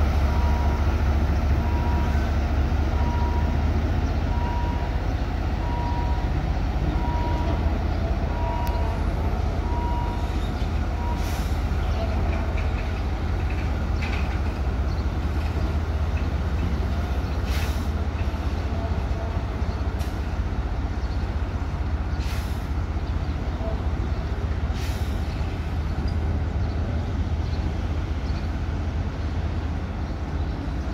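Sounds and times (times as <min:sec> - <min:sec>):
diesel locomotive engine rumbling: 0:00.0 - 0:30.9
brief hisses: 0:17.4 - 0:18.0, 0:22.2 - 0:22.7, 0:24.7 - 0:25.4.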